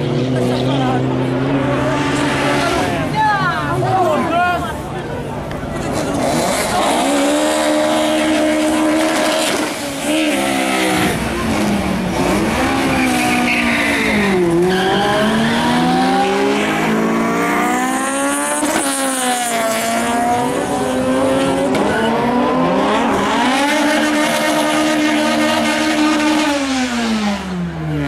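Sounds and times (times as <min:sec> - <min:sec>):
car engine revving high: 0:00.0 - 0:03.3, 0:05.8 - 0:28.0
tyres squealing: 0:12.4 - 0:16.0.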